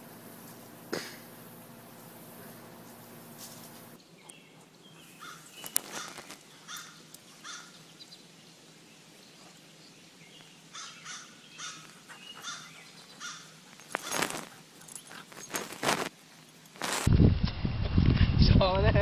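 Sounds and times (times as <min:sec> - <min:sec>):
bird calling: 0:04.1 - 0:08.2, 0:10.3 - 0:15.2.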